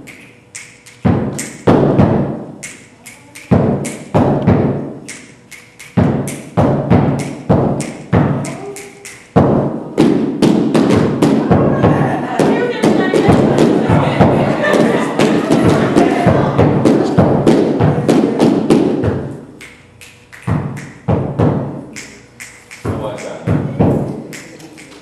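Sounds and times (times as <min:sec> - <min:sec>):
stomps and slaps on stage floor: 0:01.0 - 0:02.4, 0:03.5 - 0:04.8, 0:09.4 - 0:19.4, 0:20.5 - 0:21.7.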